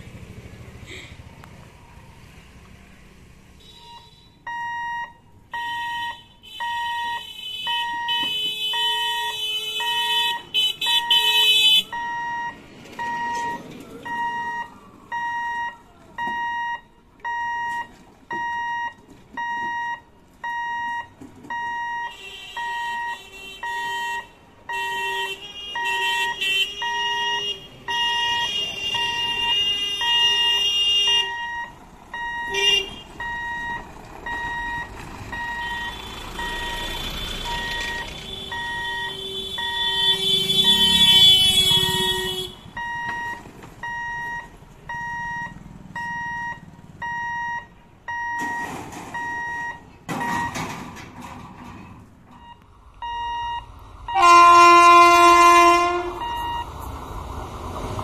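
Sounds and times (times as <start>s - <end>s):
high-pitched warning beeps: 11.9s - 24.0s, 33.2s - 41.1s, 42.8s - 50.6s, 52.4s - 53.8s, 56.2s - 56.7s
horn blasts: 35.4s - 43.0s, 54.1s - 56.6s.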